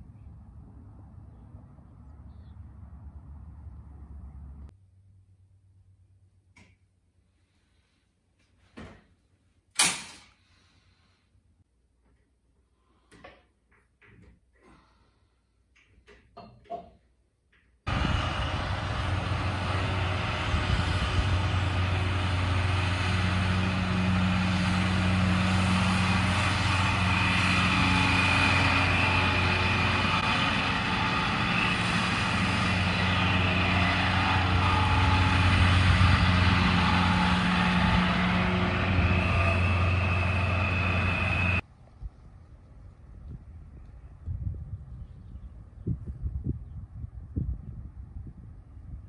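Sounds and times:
tractor engine drone: 0:00.0 - 0:06.8, 0:17.9 - 0:45.0
high machinery whine: 0:17.9 - 0:41.6.

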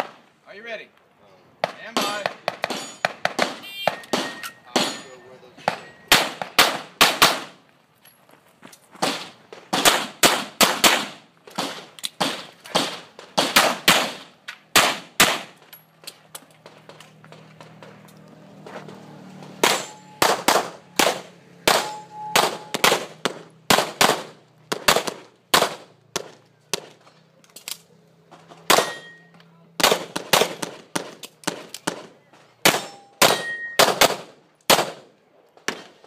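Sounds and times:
pistol shots: 0:01.6 - 0:05.0, 0:05.6 - 0:07.6, 0:09.0 - 0:15.6, 0:19.6 - 0:27.0, 0:28.7 - 0:29.2, 0:29.8 - 0:36.0
steel targets ringing: 0:02.7 - 0:03.2, 0:03.8 - 0:06.2, 0:19.6 - 0:23.3, 0:28.7 - 0:29.4, 0:32.7 - 0:33.9.

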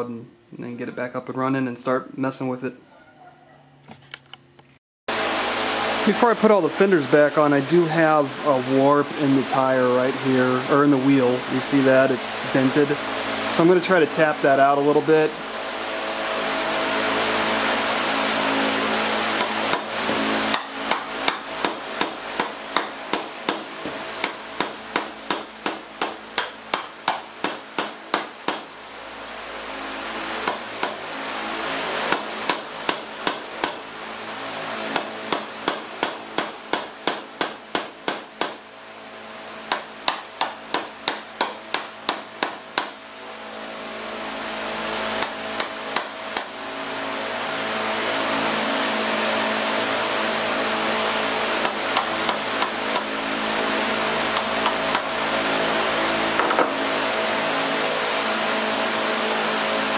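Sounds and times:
hammer striking metal rim: 0:19.4 - 0:28.7, 0:34.9 - 0:38.6, 0:39.7 - 0:43.0, 0:45.2 - 0:46.6.

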